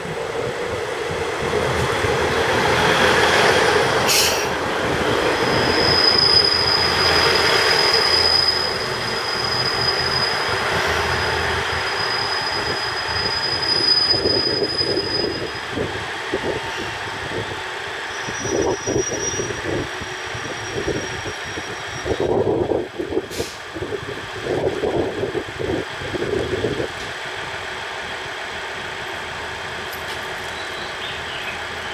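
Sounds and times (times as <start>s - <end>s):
train wheels rumbling: 0.0s - 31.9s
train brakes squealing: 2.9s - 4.6s, 5.2s - 15.8s, 18.0s - 22.4s.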